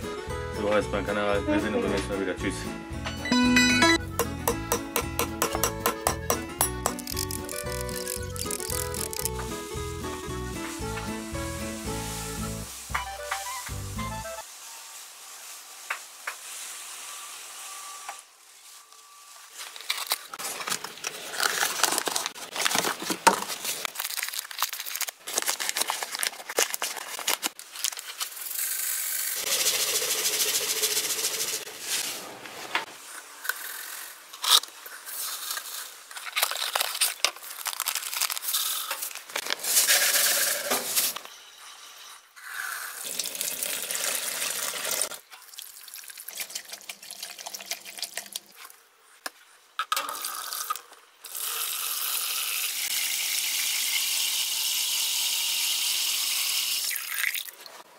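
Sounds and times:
crinkling and rustling handling noise: 6.7 - 9.7, 14.4 - 28.4, 34.4 - 40.0.

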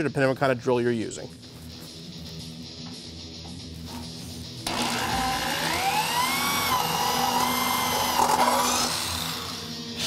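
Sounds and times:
electric drill squealing through metal: 4.7 - 10.0.

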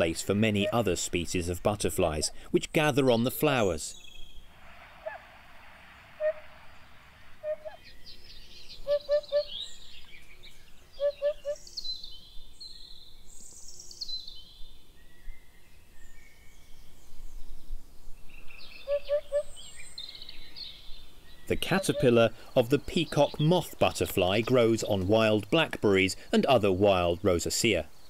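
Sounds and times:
falling bird song phrases: 0.0 - 28.0
low three-note bird call: 18.8 - 19.6.

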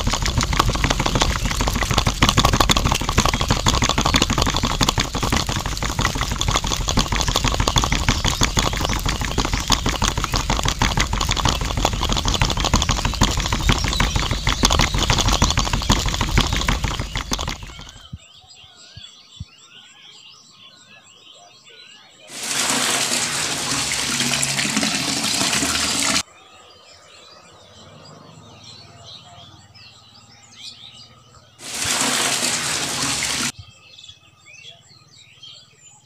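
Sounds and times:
small concrete mixer motor running: 0.0 - 18.0.

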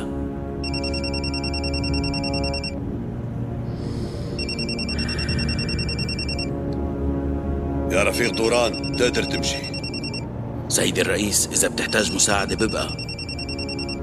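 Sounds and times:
background music: 0.0 - 14.0
telephone ringing electronic trill: 0.6 - 2.8, 4.4 - 6.5, 8.4 - 10.2, 11.8 - 14.0.

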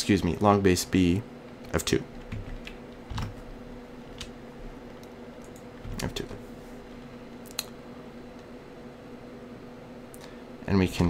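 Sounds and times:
faint steady hum: 0.0 - 11.0
keystrokes on computer keyboard: 2.2 - 3.4.

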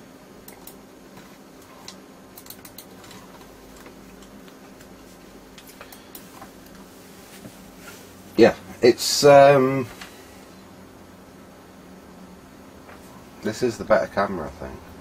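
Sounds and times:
low steady hum: 0.0 - 15.0
computer mouse clicking: 0.4 - 0.8, 1.6 - 4.9, 5.6 - 6.8.

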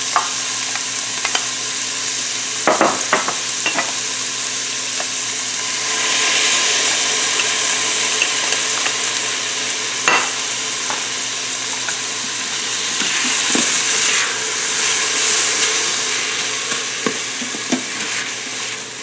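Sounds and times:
food sizzling in a pot: 0.0 - 19.0
spoon knocking and scraping pot: 2.7 - 4.0.

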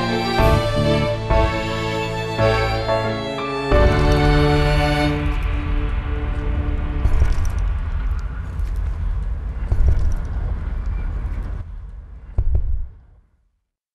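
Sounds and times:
held music notes: 0.0 - 8.0
deep rumble: 0.0 - 13.3.

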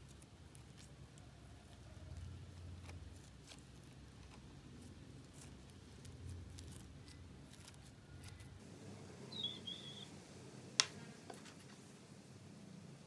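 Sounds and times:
slime ticks and crackles: 0.0 - 8.5.

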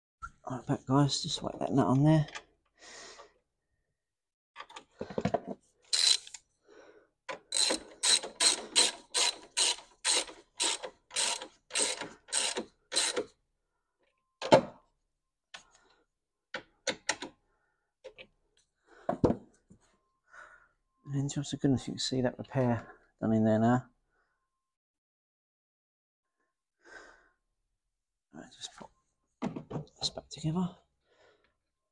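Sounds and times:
socket ratchet clicking: 5.9 - 6.4, 7.5 - 13.3.

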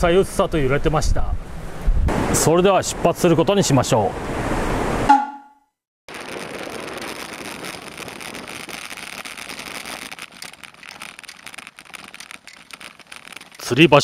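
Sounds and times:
wind on microphone: 1.0 - 2.2
wind and road noise from bicycle: 6.1 - 14.0
small clicks and rattles: 8.0 - 14.0.

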